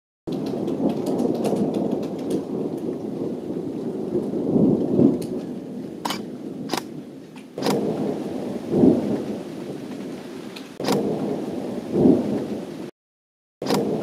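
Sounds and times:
sharp clicks: 0.3 - 2.4, 6.0 - 7.8, 10.8 - 11.0, 13.6 - 13.9
rain falling: 0.3 - 12.9, 13.6 - 14.0
thunder rumbling: 0.3 - 12.9, 13.6 - 14.0.

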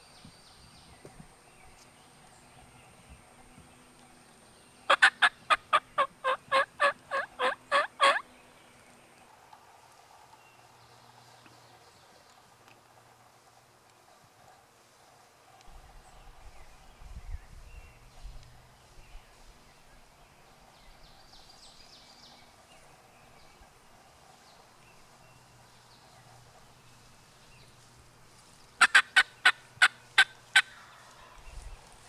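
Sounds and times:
wild turkey calling: 4.9 - 8.3, 28.8 - 31.5.

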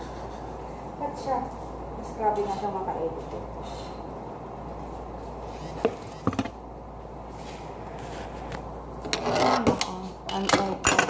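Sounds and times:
kitchen clatter: 9.1 - 11.0.

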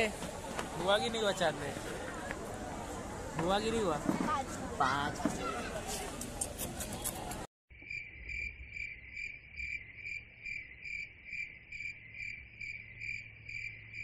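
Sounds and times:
crickets chirping: 7.7 - 14.0.

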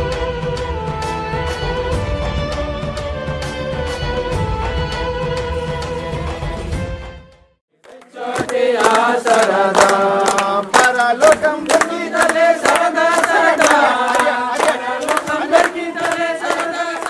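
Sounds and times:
group singing in unison: 7.8 - 17.0
hands clapping in time: 7.8 - 17.0.

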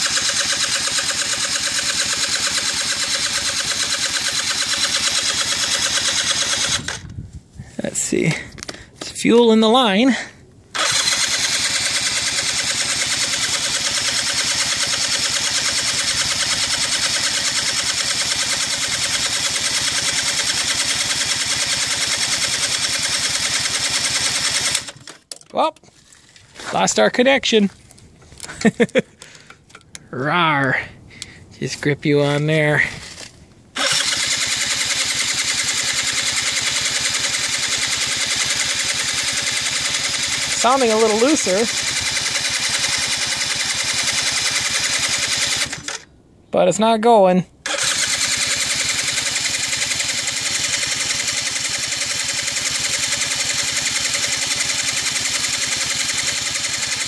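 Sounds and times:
engine cranking without starting: 0.0 - 7.1, 10.1 - 26.7, 28.4 - 30.1, 32.3 - 46.1, 47.6 - 57.0.

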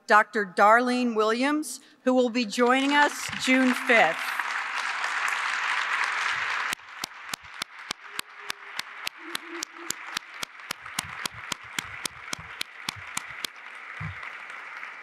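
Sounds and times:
audience applause: 3.1 - 15.0
single person clapping: 3.3 - 15.0.

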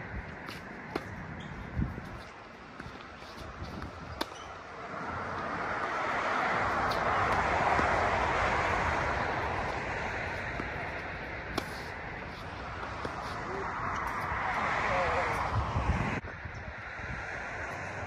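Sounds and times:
tennis balls hit by rackets: 0.3 - 14.6
passing vehicle rushing: 3.4 - 18.0.

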